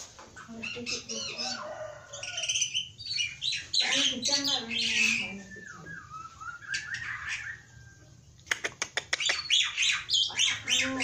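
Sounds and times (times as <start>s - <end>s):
myna bird harsh calls: 0.0s - 11.0s
soft gliding whistles: 4.9s - 8.2s
sharp bird clicks: 8.4s - 9.9s.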